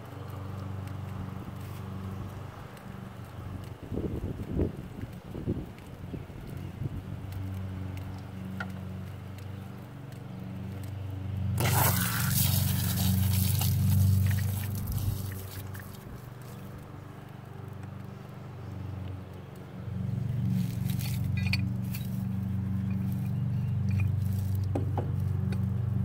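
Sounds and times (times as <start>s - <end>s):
steady low hum: 0.0s - 26.0s
hose connector scraping and hissing: 11.6s - 16.6s.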